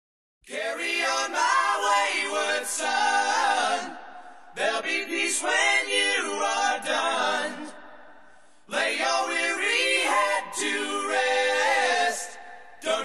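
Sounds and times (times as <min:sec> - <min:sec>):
voices singing a cappella: 0:00.5 - 0:13.0.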